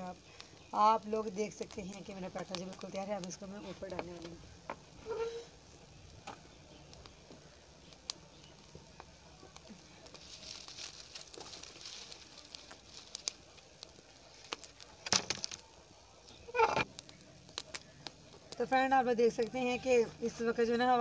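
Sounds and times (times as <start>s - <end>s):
wood fire crackling: 0.0s - 21.0s
sticks scraping: 16.5s - 16.9s.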